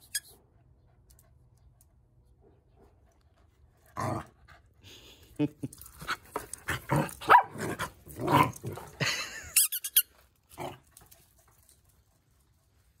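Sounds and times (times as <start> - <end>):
dogs growling and squeaking: 6.7 - 10.8.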